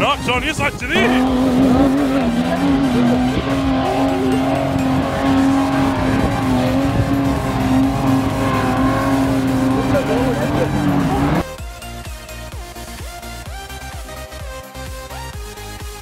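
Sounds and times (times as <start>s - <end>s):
engine at high revs: 0.4s - 11.6s.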